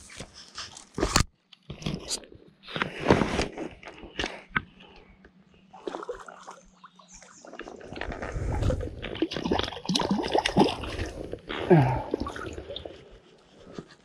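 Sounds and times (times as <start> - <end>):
water splashing and gurgling: 5.7 - 13.7.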